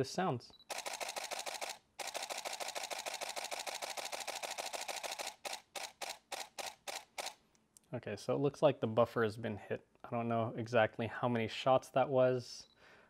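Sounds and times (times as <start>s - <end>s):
camera shutter clicks: 0.7s - 7.4s.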